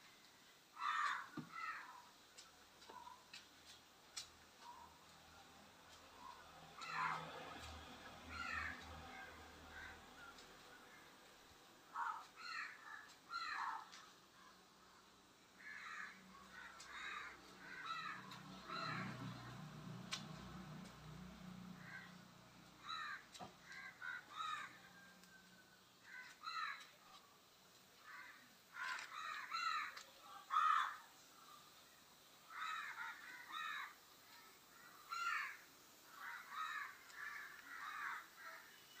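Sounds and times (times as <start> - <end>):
crows cawing: 0.7 - 2.2, 2.9 - 3.2, 4.6 - 5.0, 6.2 - 11.1, 11.9 - 14.1, 15.6 - 19.6, 21.7 - 27.2, 28.0 - 31.1, 32.4 - 39.0.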